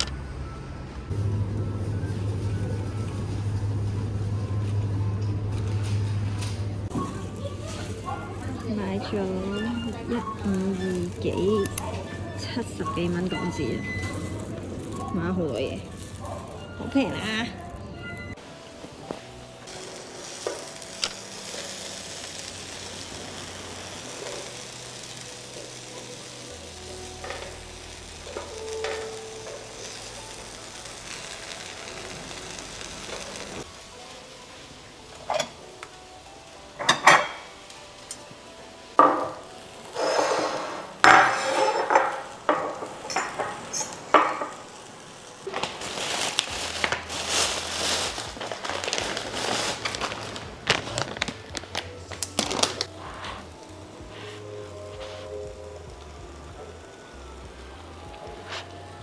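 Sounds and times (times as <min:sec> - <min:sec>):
meat sizzling on a grill: 0:05.6 - 0:59.0
tongs and plates clinking: 0:40.0 - 0:44.7.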